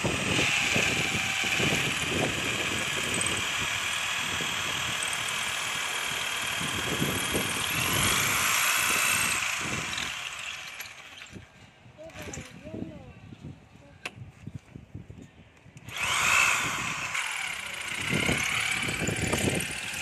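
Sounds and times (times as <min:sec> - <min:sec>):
electric drill whining: 0:00.0 - 0:11.4, 0:15.8 - 0:20.0.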